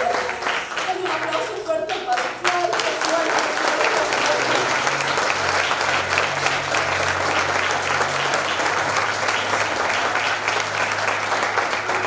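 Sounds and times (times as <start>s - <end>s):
crowd applauding: 0.0s - 12.0s.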